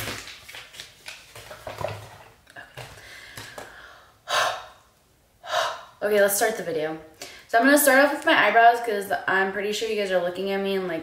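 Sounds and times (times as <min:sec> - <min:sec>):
woman breathing loudly: 0:02.8 - 0:06.0.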